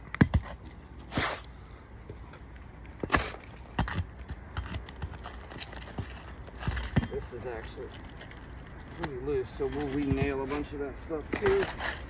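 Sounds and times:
metal tapping shingle: 2.1 - 12.0
pry bar scraping shingles: 3.0 - 12.0.

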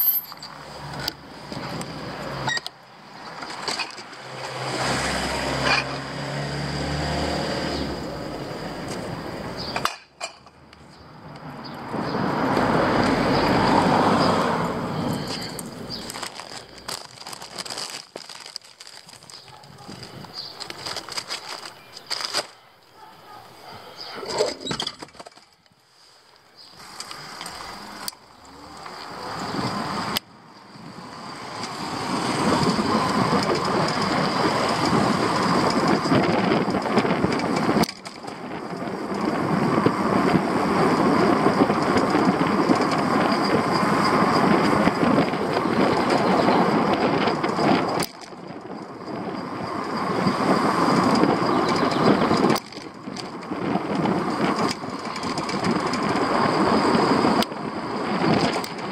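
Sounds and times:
road rumble: 0.0 - 58.9
wind rushing over microphone: 11.0 - 21.8, 26.8 - 58.9.

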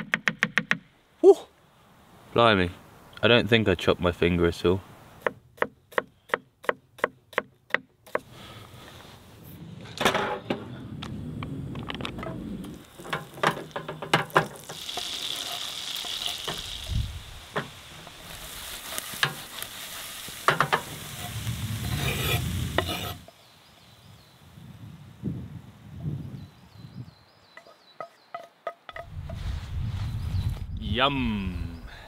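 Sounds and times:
knocks and scrapes of stirring: 12.2 - 16.6, 20.4 - 23.3, 27.6 - 29.4
vegetables sizzling in a frying pan: 12.7 - 23.3.

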